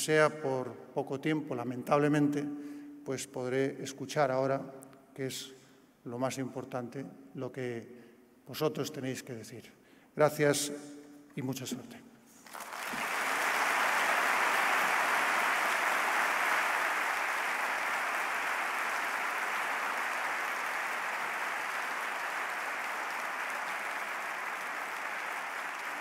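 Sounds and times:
audience applauding: 0:12.4 - 0:26.0.

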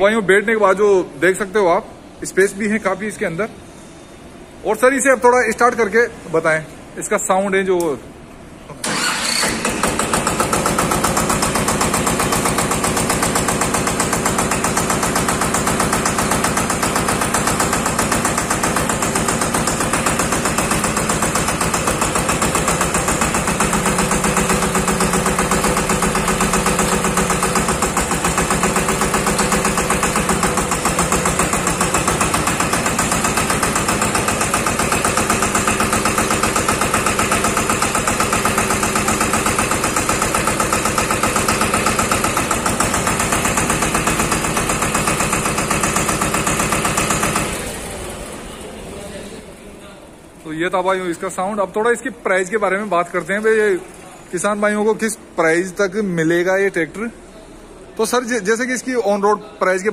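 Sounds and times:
tractor diesel engine starting and idling: 0:08.7 - 0:49.3.

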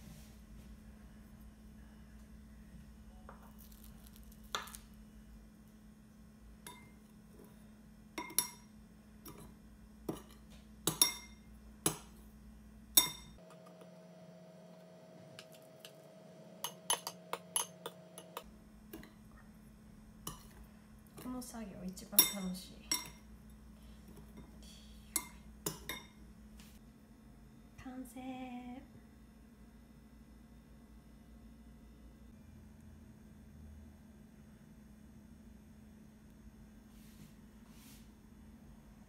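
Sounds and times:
metal spoon clinking on glass bowl: 0:06.6 - 0:07.0, 0:08.2 - 0:08.7, 0:10.1 - 0:11.4, 0:13.0 - 0:13.4, 0:16.6 - 0:18.4, 0:22.1 - 0:23.2.

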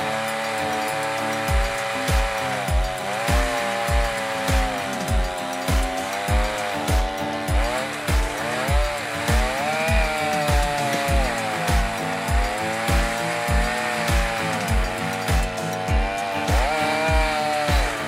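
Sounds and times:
chainsaw cutting wood: 0:00.0 - 0:18.0
music with low beat: 0:00.0 - 0:18.0.

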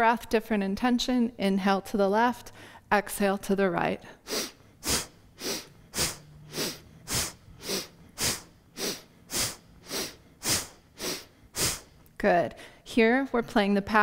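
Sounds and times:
forceful breathing through nose: 0:04.1 - 0:12.0.

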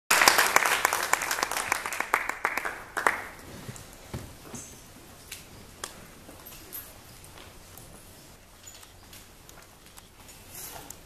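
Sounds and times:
audience applause: 0:00.1 - 0:03.4.

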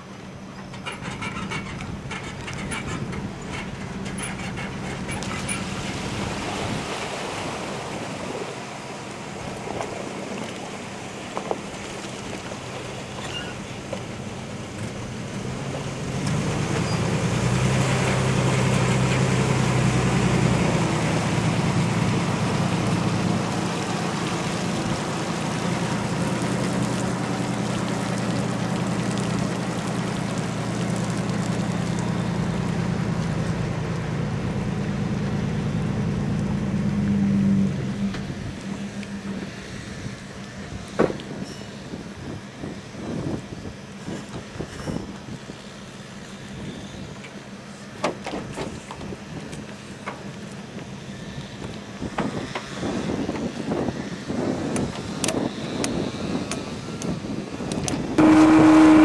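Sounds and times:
wind noise: 0:00.8 - 0:08.4, 0:37.8 - 0:45.7, 0:51.1 - 0:59.0
vehicle engine running: 0:13.9 - 0:41.0, 0:58.2 - 0:59.0.

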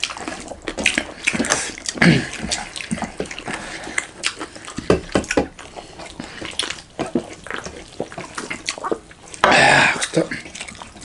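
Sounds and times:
wet chewing and lip-smacking: 0:00.0 - 0:11.0.

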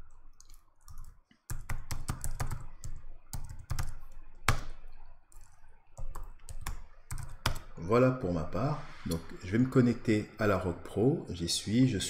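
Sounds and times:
computer keyboard typing: 0:00.0 - 0:07.8.

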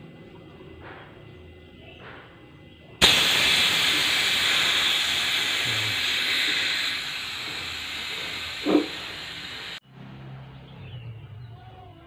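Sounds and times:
gas hissing from a pipe: 0:00.8 - 0:09.8.

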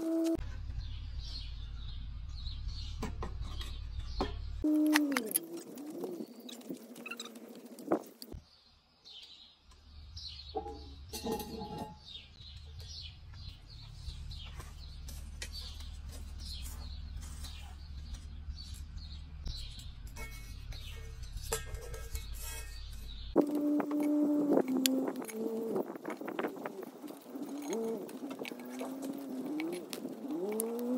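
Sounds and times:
small birds chirping: 0:00.0 - 0:30.9
cast-iron lid clanking: 0:10.6 - 0:12.1.

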